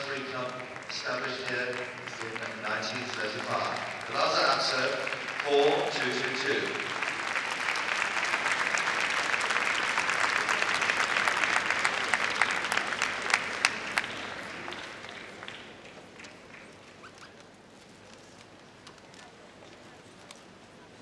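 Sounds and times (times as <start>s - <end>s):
large crowd applauding: 0.0s - 17.0s.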